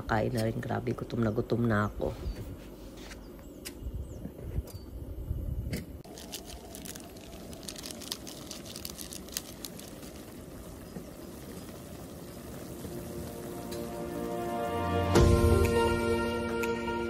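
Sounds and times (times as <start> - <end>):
food sizzling in a frying pan: 6.0 - 15.1.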